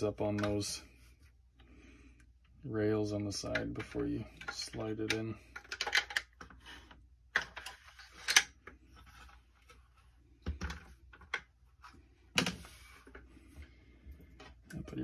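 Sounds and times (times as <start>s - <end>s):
rifle parts clicking and clacking: 3.4s - 6.6s, 7.3s - 8.6s.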